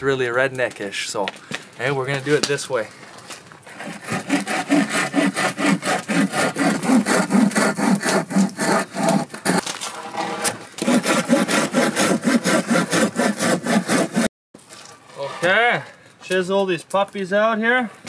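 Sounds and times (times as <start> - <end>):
hand saw cutting log: 3.6 - 14.3.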